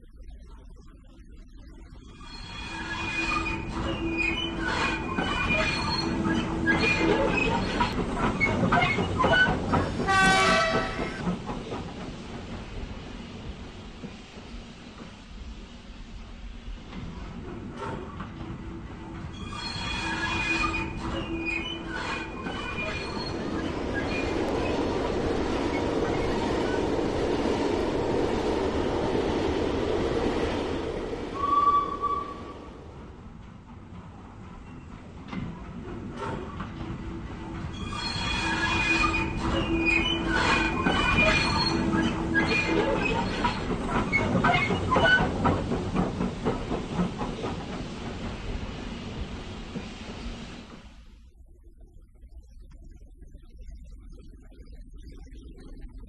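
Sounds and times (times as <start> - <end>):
wheel squeals: 2.2 - 11.2, 19.3 - 24.9, 37.7 - 45.8
model train rumbling on rails: 2.2 - 51.3.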